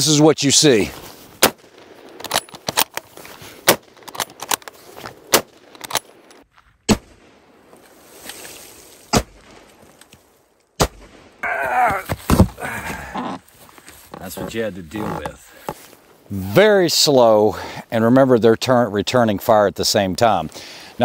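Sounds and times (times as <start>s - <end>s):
rifle shots: 1.4s - 2.9s, 3.6s - 4.6s, 5.2s - 7.6s, 9.1s - 9.8s, 10.8s - 11.4s
rifle bolt clicks: 3.7s - 6.4s.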